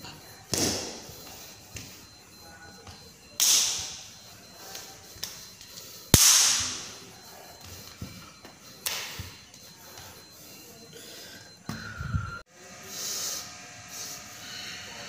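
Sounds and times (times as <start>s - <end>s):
sharp hand slaps: 3.4s - 3.9s, 8.8s - 9.2s.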